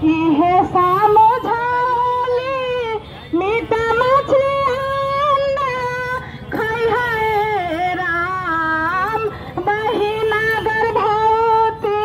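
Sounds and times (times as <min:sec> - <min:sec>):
woman singing: 0:00.0 - 0:12.0.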